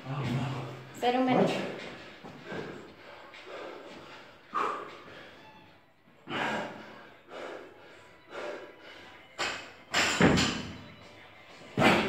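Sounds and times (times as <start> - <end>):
man breathing hard: 2.0 - 5.6, 6.2 - 9.3.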